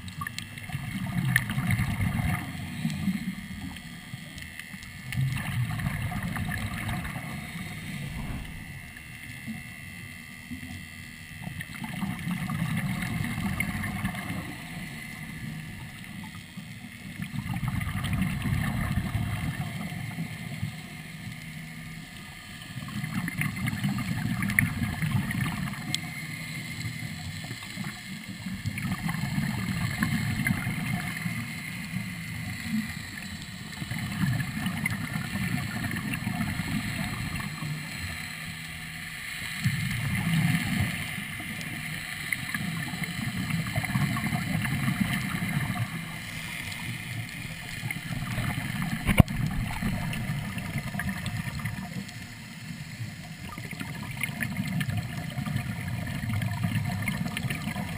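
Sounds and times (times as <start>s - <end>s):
air bubbling underwater: 5.2s - 9.1s.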